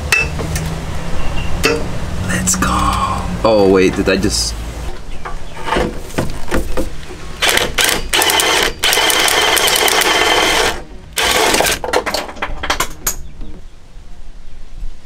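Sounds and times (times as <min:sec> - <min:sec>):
cordless power tool whirring: 0:07.4 - 0:11.8.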